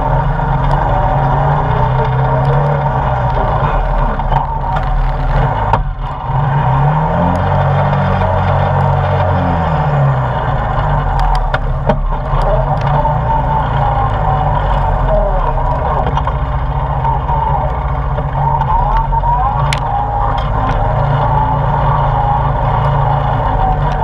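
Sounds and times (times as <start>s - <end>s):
atv engine running: 0.0s - 24.0s
knocks and clicks from bumpy ride: 10.4s - 24.0s.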